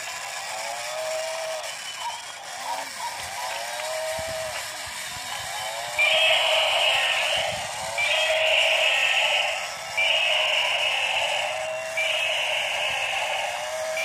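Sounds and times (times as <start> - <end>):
high buzzy electronic sound: 5.7 - 14.0.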